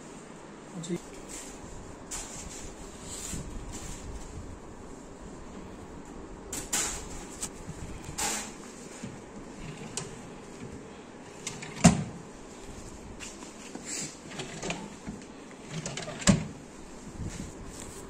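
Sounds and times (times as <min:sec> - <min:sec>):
sharp knocks of drawers: 0:11.4 - 0:12.2, 0:14.3 - 0:16.6.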